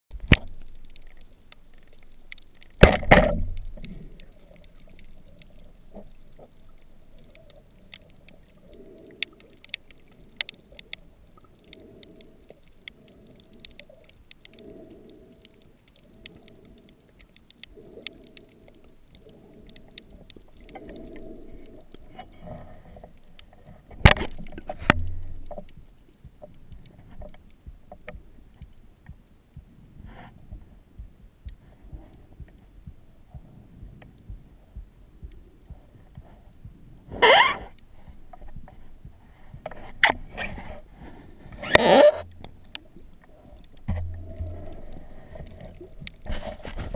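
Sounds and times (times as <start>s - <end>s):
faint clicks: 0.1s - 46.9s
soft slow pulsing: 0.5s - 46.9s
loud sharp underwater knocks: 2.8s - 3.6s.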